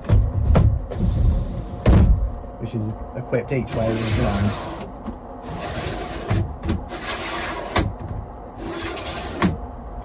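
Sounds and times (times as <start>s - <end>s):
blind rustling along tracks: 3.5s - 9.7s.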